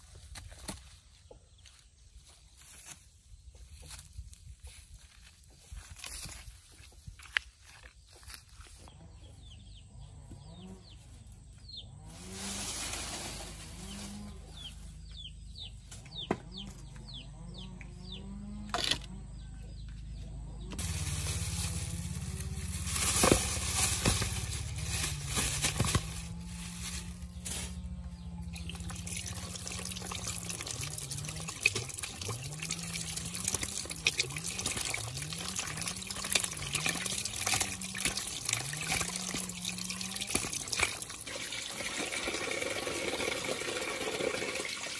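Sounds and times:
plastic bag rustling: 20.8s - 28.0s
water trickling into plastic basin: 28.5s - 44.9s.

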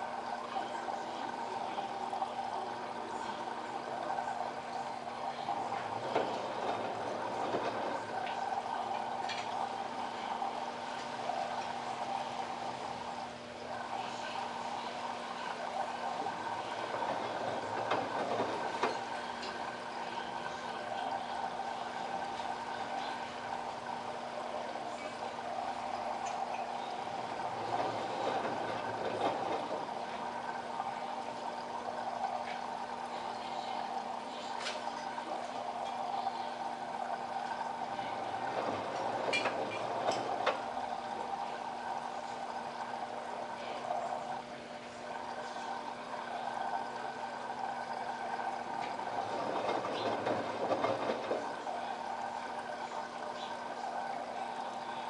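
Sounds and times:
washing machine motor humming: 0.0s - 55.0s
water sloshing in drum: 0.0s - 55.0s.

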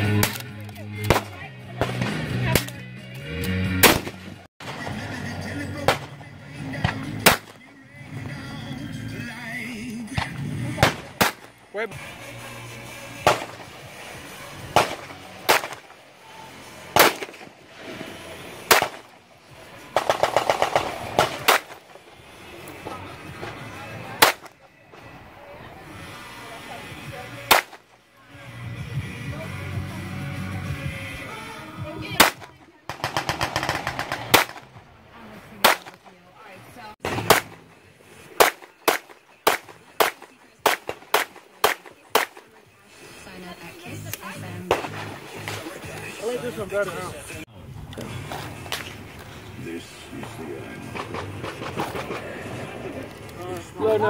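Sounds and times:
pistol shots: 3.8s - 5.0s, 5.8s - 7.7s, 10.1s - 11.6s, 13.2s - 13.8s, 14.7s - 16.0s, 16.9s - 17.5s, 18.6s - 19.2s, 19.9s - 22.0s, 24.2s - 24.6s, 27.5s - 27.9s, 32.2s - 34.8s, 35.6s - 36.1s, 37.0s - 37.7s, 38.3s - 42.5s, 44.7s - 45.7s.

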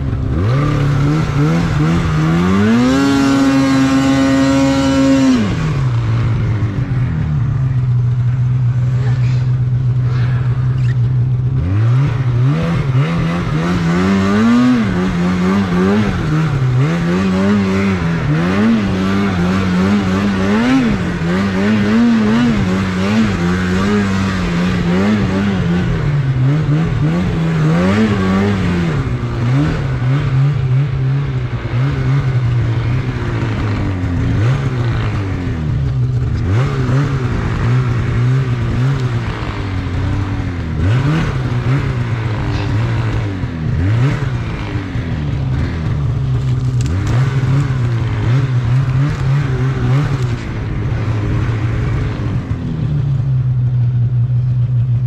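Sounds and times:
snowmobile engine revving: 0.0s - 55.0s.

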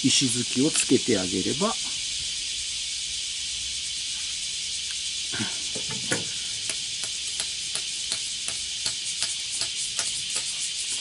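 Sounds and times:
high insect drone: 0.0s - 11.0s
light tapping on pole: 5.8s - 10.5s.

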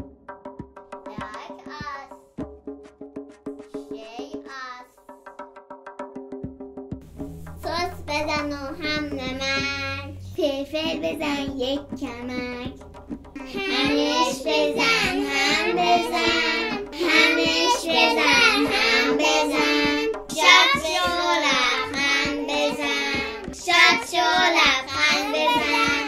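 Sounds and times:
child singing: 1.0s - 2.2s, 3.7s - 5.0s, 7.6s - 12.8s, 13.4s - 26.0s.

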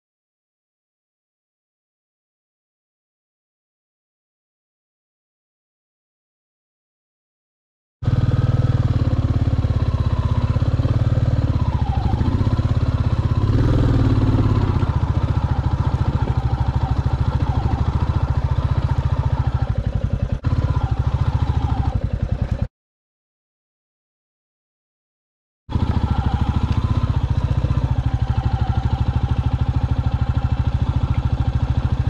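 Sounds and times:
motorcycle engine running: 8.0s - 22.7s, 25.7s - 32.0s.

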